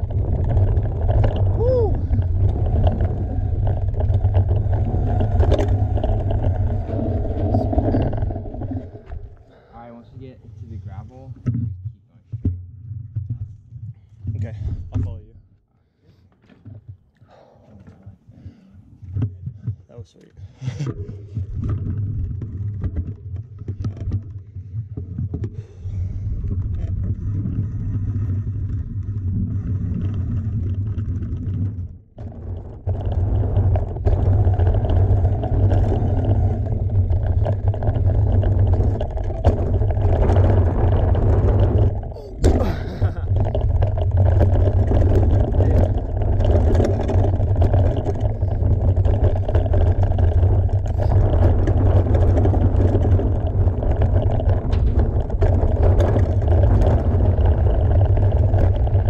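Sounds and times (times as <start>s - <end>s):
wind on the microphone: 0.0s - 9.5s, 20.8s - 59.0s
tyres rumbling on dirt: 0.0s - 9.8s, 25.9s - 59.0s.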